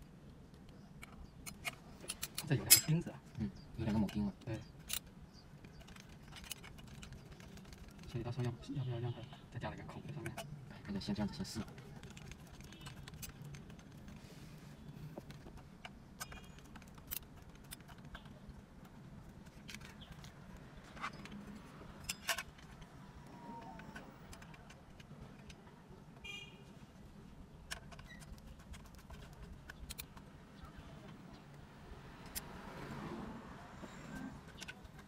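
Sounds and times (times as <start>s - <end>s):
metallic clicks and knocks: 15.2s - 23.0s, 27.6s - 30.3s.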